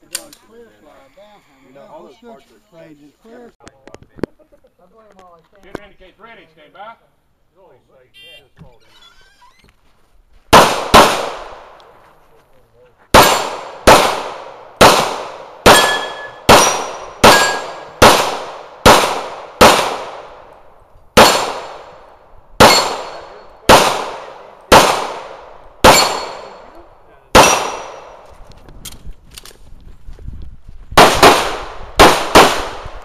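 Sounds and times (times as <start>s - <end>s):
pistol shots: 10.5s - 11.8s, 13.1s - 20.5s, 21.2s - 22.0s, 22.6s - 26.6s, 27.3s - 28.2s, 31.0s - 33.0s.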